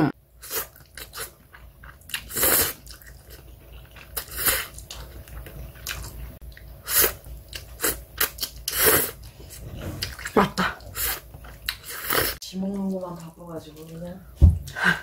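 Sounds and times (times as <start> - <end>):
chewing: 0.4 - 14.1.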